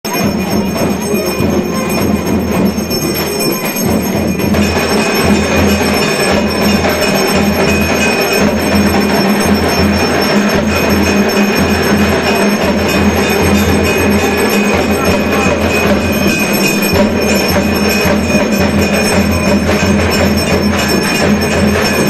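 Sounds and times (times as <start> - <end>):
bells ringing: 0.0 - 22.0.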